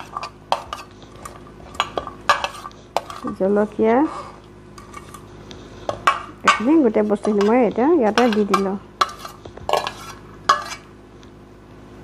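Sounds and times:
metal spoon scraping glass plate: 0:00.0 - 0:03.4, 0:05.9 - 0:10.9.

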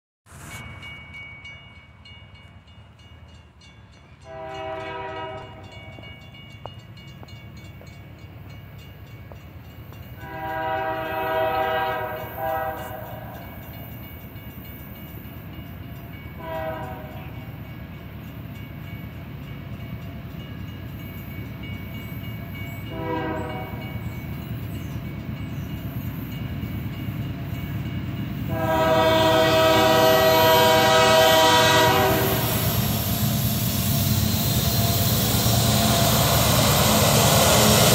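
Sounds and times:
train rumbling: 0:00.3 - 0:37.9
locomotive air horn blasts: 0:04.2 - 0:05.7, 0:10.2 - 0:13.4, 0:16.4 - 0:17.3, 0:22.9 - 0:23.8, 0:28.5 - 0:33.0.

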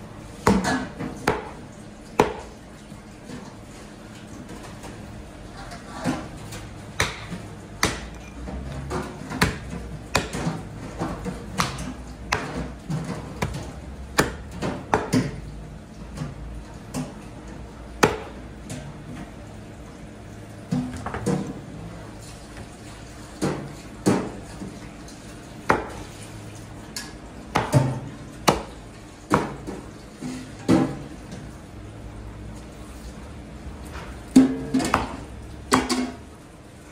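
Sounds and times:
cleaver chopping meat on wood: 0:00.4 - 0:01.6, 0:02.2 - 0:02.5, 0:07.0 - 0:08.2, 0:08.9 - 0:15.4, 0:18.0 - 0:18.4, 0:27.5 - 0:29.7.

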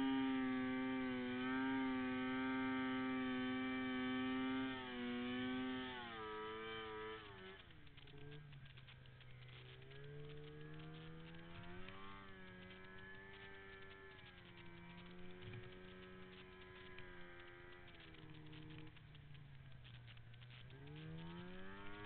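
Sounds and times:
faint snowmobile engine revving: 0:00.0 - 0:22.0.

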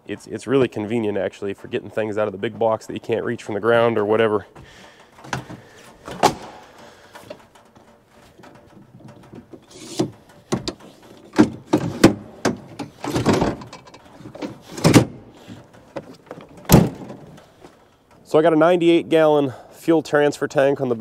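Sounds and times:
metal step clacking and knocking: 0:03.8 - 0:18.2
tailgate clunk: 0:04.6 - 0:17.7
rattling scrape: 0:04.7 - 0:18.1.

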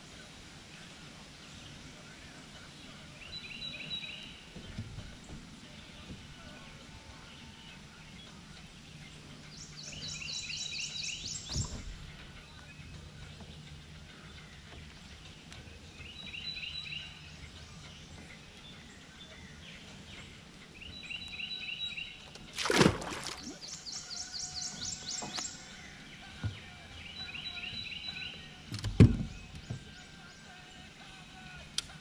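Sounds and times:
songbird singing: 0:00.0 - 0:32.0
splash in water: 0:22.5 - 0:23.6
knock on boat: 0:28.8 - 0:29.8.

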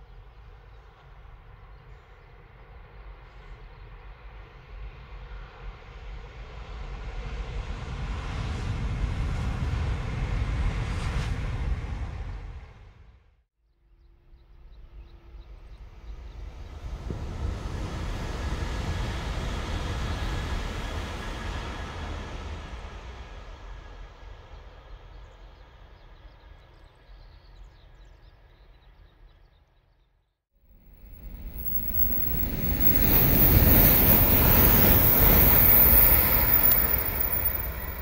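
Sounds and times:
high-speed train passing: 0:03.9 - 0:13.1, 0:15.3 - 0:27.1, 0:30.7 - 0:38.0.

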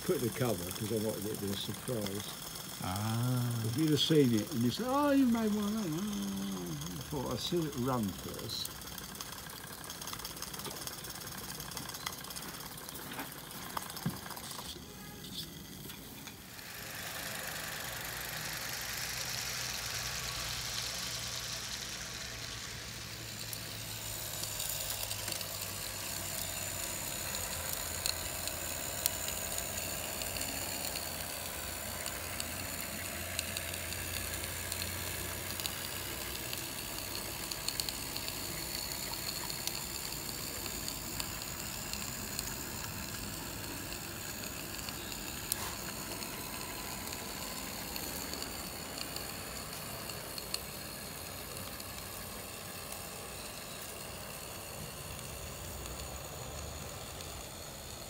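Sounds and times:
steam locomotive hissing: 0:00.0 - 0:09.1.

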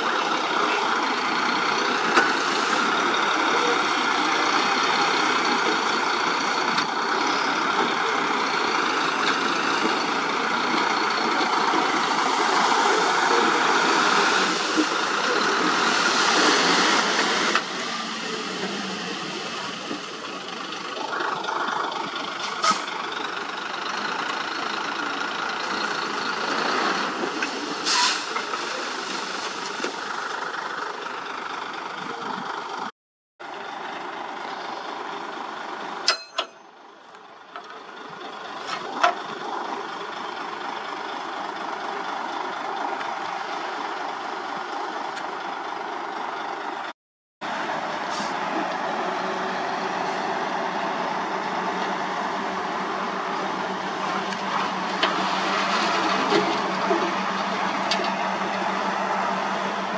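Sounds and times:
diesel engine running: 0:00.0 - 0:59.9
short burst of air hiss: 0:27.8 - 0:28.4.

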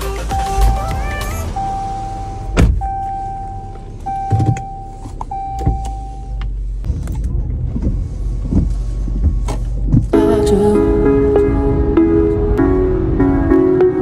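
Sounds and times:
electronic tone: 0:00.3 - 0:06.4
knocks and clicks of controls: 0:00.3 - 0:10.2.

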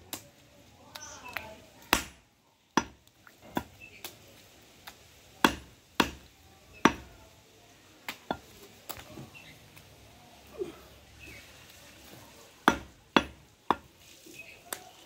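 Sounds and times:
cleaver chopping meat on wood: 0:01.9 - 0:02.2, 0:02.8 - 0:03.8, 0:05.4 - 0:07.1, 0:12.6 - 0:13.9.

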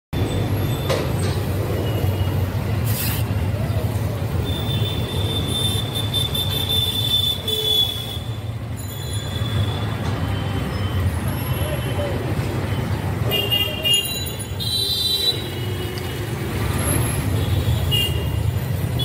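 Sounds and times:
traffic rumble: 0:00.1 - 0:19.0.

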